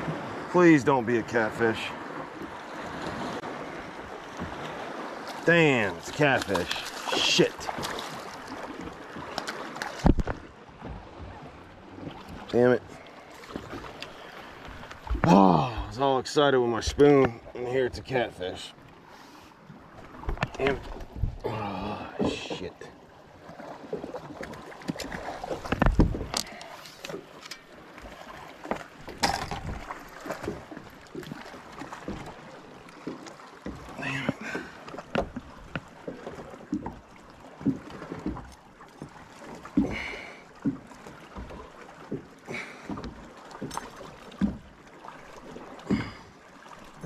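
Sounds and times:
fishing tackle clicks and knocks: 24.9s - 27.7s, 28.7s - 29.9s.

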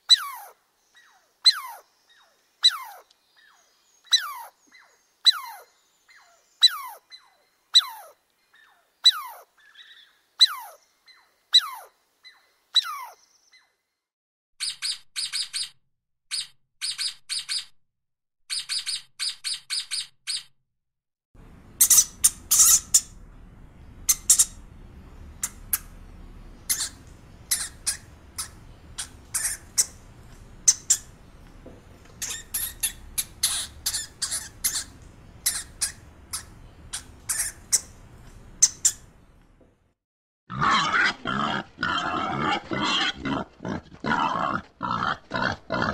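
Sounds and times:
squirrel chirping calls: 0.0s - 13.8s, 14.6s - 17.8s, 18.5s - 20.5s, 21.6s - 23.2s, 23.8s - 39.4s
rat squeaks and clicks: 14.6s - 17.7s, 18.5s - 20.5s, 21.8s - 23.2s, 24.1s - 24.6s, 26.7s - 39.1s
sea otters squeaking chatter: 21.8s - 23.2s, 26.7s - 30.0s, 30.6s - 31.1s, 32.2s - 38.0s, 38.6s - 39.1s.

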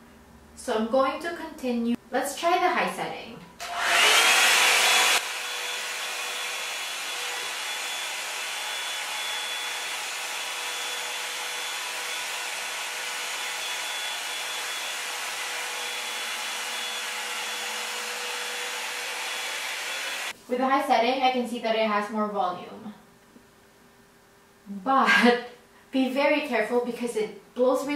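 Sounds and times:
hot-air brush running: 3.6s - 20.4s.

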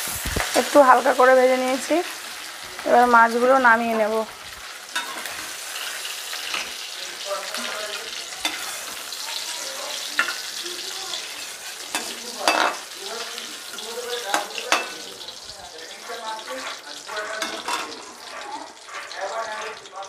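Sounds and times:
prawns sizzling in hot oil: 0.0s - 20.0s
metal spatula clacking and scraping: 4.9s - 19.9s.

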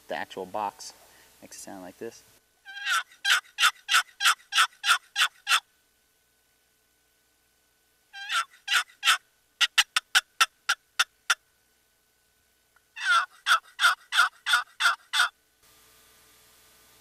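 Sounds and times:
turkey box call: 2.6s - 5.7s, 8.1s - 11.4s, 12.9s - 15.4s.

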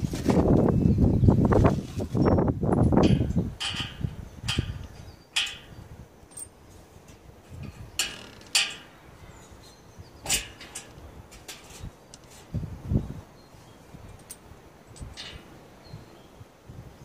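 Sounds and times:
metallic clinks and scrapes: 1.9s - 9.0s, 10.2s - 12.6s, 14.0s - 15.5s.

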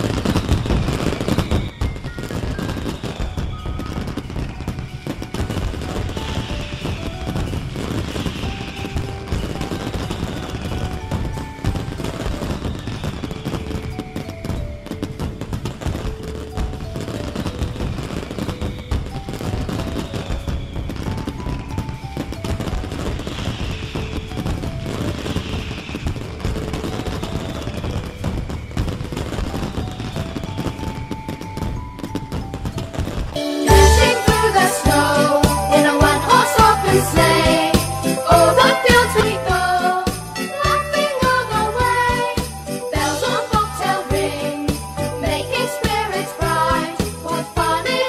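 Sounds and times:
fireworks bangs and crackles: 0.0s - 48.0s
background music held-note melody: 0.1s - 23.5s, 28.9s - 48.0s
faint melody: 30.6s - 48.0s.

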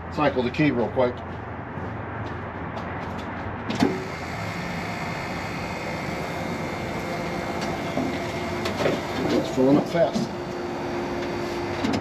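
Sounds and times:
electric fuel pump running: 3.8s - 12.0s.

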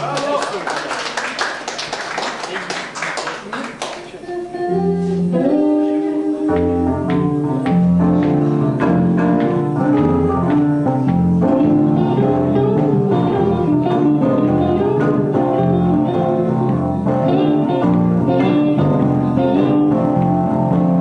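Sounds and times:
electric guitar: 4.6s - 21.0s.

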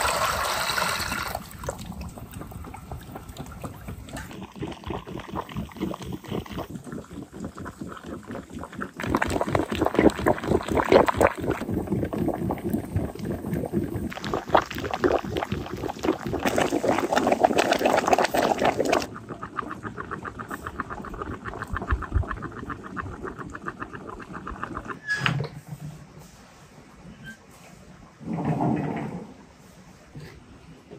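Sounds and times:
water boiling hard: 0.0s - 25.0s.

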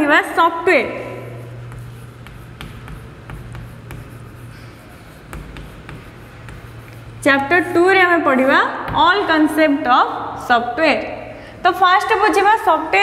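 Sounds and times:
chalk tapping and scratching: 0.0s - 9.6s
steady low hum: 0.0s - 13.0s.

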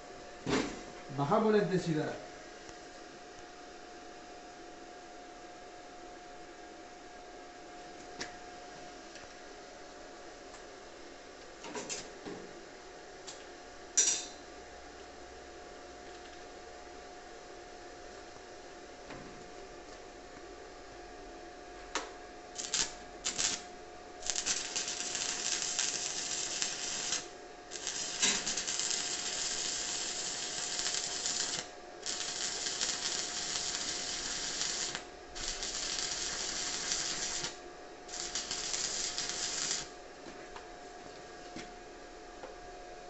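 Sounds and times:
arc welding crackling and hissing: 22.5s - 40.0s.

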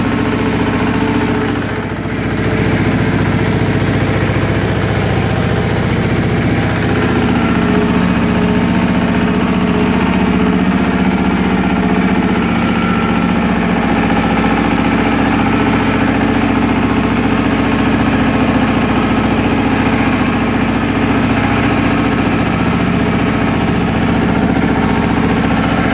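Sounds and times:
tractor engine running: 0.0s - 25.9s.

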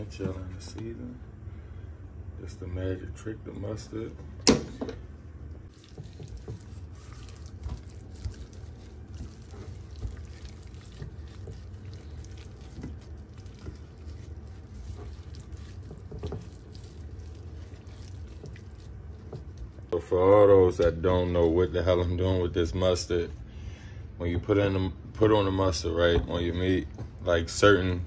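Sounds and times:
low steady hum: 0.0s - 28.0s
wet squishing: 5.6s - 20.0s.

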